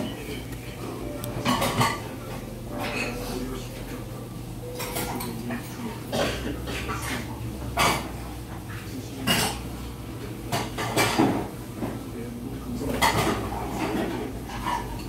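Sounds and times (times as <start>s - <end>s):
low steady hum: 0.0s - 10.9s.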